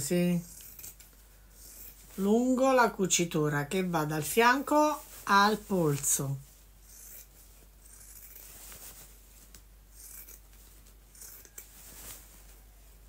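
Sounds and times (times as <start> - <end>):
cloth rustling: 4.2 - 13.0.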